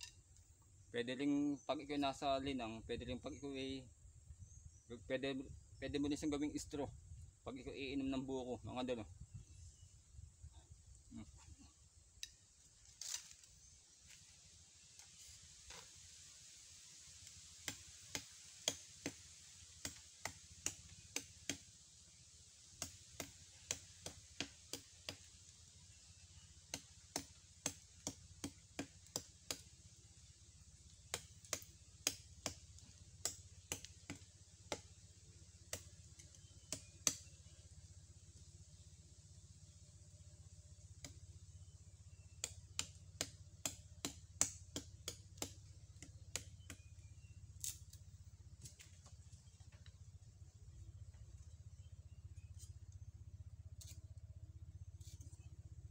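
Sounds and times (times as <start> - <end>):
knife chopping plant stem: 19.8 - 21.7, 22.8 - 25.3, 26.7 - 29.7, 31.0 - 34.9, 35.6 - 37.4, 42.1 - 46.9.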